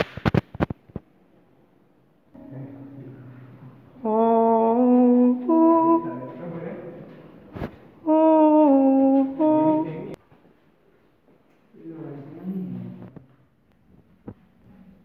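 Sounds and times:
person humming: 0:02.7 - 0:06.5, 0:08.0 - 0:10.2.

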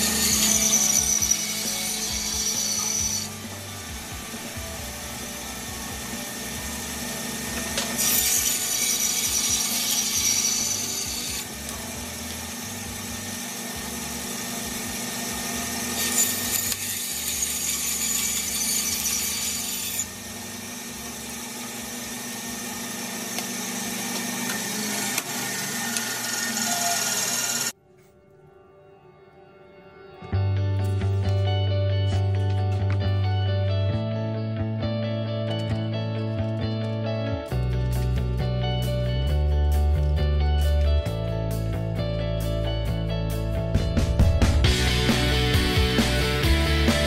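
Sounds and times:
bandsaw motor hum: 0:00.0 - 0:27.7, 0:44.6 - 0:47.0.

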